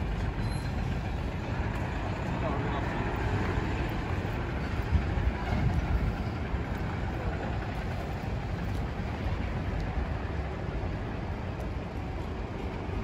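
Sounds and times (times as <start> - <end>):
heavy traffic noise: 0.0 - 13.0
truck diesel engine running: 0.0 - 13.0.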